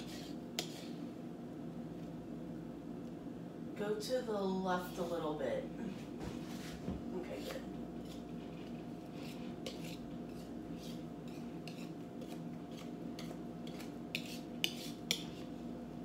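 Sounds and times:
whisk scraping a mixing bowl: 0:00.0 - 0:01.0, 0:07.2 - 0:15.6.

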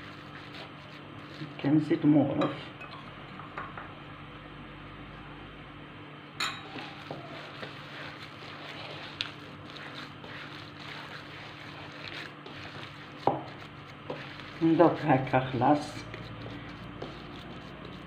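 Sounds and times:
steady low hum: 0:00.0 - 0:18.0
hands squishing meat mixture: 0:06.7 - 0:18.0.

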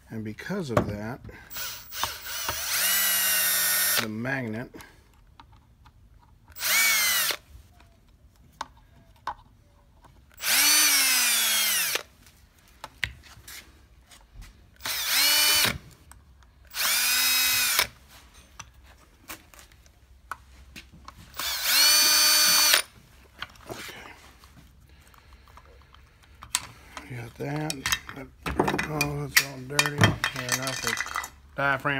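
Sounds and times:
cordless drill backing out screws: 0:01.5 - 0:04.1, 0:14.8 - 0:15.8, 0:21.3 - 0:22.9
handling clicks and knocks: 0:25.1 - 0:31.3.

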